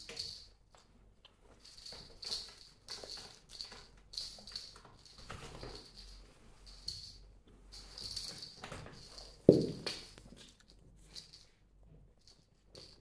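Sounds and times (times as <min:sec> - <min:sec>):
light jingling: 0:01.6 - 0:11.5.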